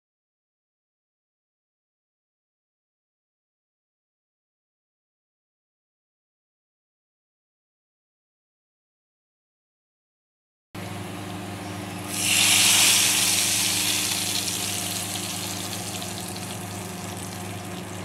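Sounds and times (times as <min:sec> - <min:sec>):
hot oil sizzling: 0:11.9 - 0:18.0.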